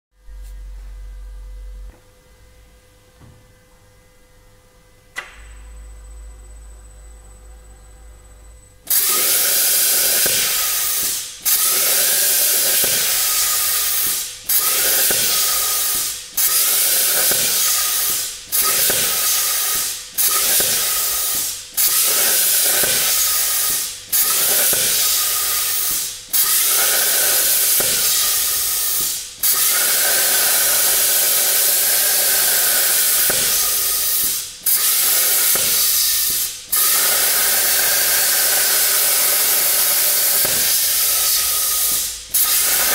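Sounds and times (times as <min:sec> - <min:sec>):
plasma cutter hissing: 0:08.9 - 0:42.9.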